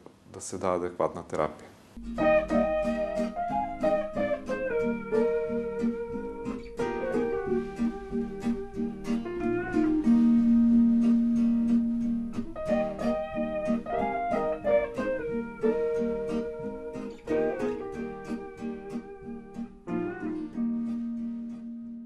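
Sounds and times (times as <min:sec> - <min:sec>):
long held tones: 0:02.0 - 0:19.3
plucked guitar notes: 0:02.0 - 0:22.0.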